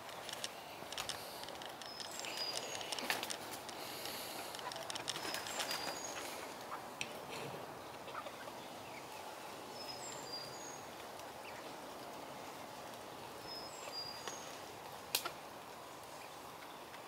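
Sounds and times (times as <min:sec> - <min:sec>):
steady outdoor hum: 0:00.0 - 0:17.0
hens clucking softly: 0:04.0 - 0:09.2.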